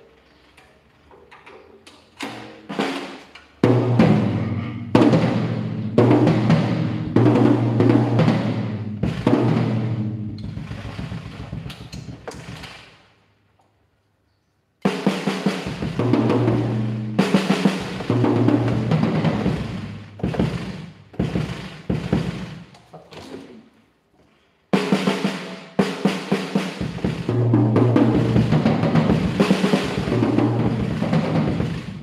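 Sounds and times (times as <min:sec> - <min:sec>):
tom drum strokes: 0:02.2 - 0:12.9, 0:14.8 - 0:22.8.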